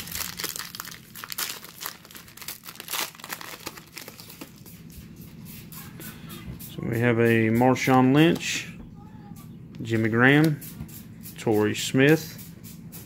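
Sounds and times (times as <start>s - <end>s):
plastic wrapper tearing and crinkling: 0.0s - 4.7s.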